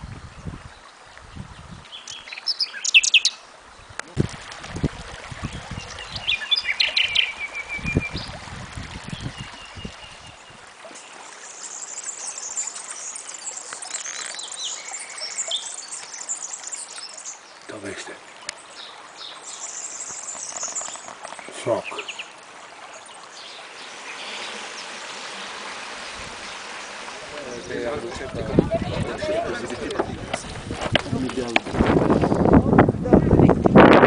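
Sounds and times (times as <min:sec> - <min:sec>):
shallow stream water hissing: 0:00.0 - 0:32.5
small birds chirping: 0:00.8 - 0:04.2, 0:05.4 - 0:29.0
bird trill: 0:02.0 - 0:03.4, 0:06.2 - 0:08.3.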